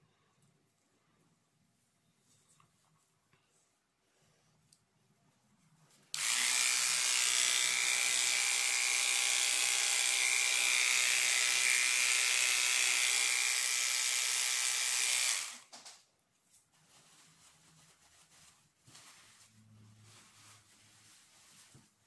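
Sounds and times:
electric hair clippers running: 6.2s - 15.7s.

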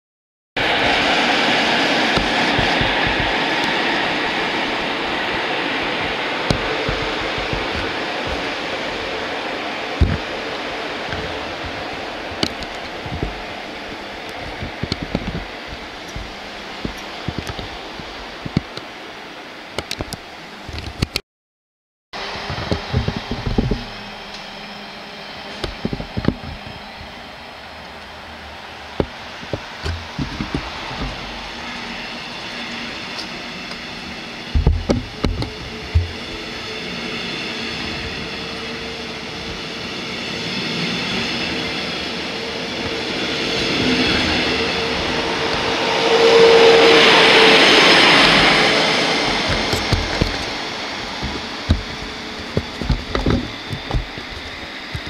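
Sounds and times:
wind on microphone: 0.6s - 19.0s, 22.2s - 24.3s, 33.8s - 39.8s
electric train running: 0.6s - 21.0s, 22.2s - 55.0s
train approaching with thumps and clatter: 0.6s - 21.1s, 22.2s - 55.0s
steady hum: 0.6s - 21.2s, 22.2s - 39.7s, 44.6s - 55.0s
clicks and knocks: 22.5s - 24.4s, 49.2s - 55.0s.

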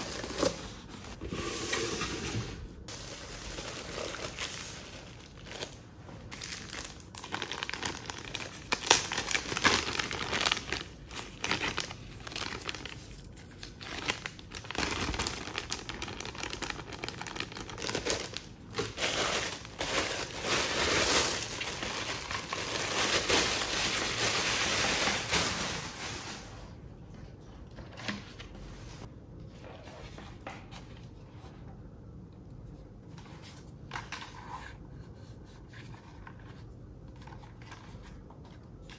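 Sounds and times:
plastic bag crinkling: 2.9s - 26.8s.

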